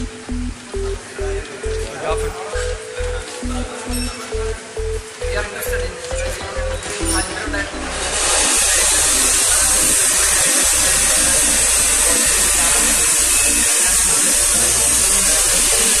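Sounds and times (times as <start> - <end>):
electric motor whirring: 7.0 - 16.0.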